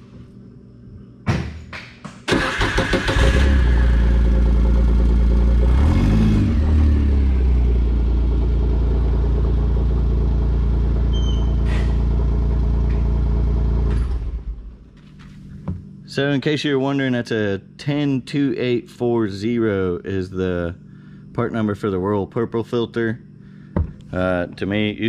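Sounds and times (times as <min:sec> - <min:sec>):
engine cranking and starting: 0:02.3 - 0:04.9.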